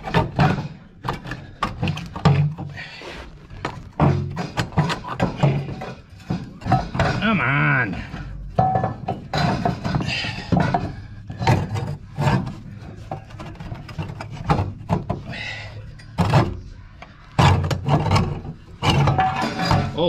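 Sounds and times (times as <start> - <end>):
metal knocks and scrapes: 0.0 - 20.0.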